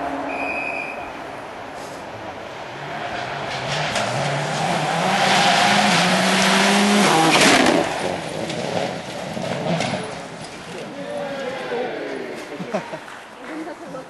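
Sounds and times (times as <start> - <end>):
tyres on loose dirt: 1.7 - 13.8
rally car engine revving: 2.5 - 11.7.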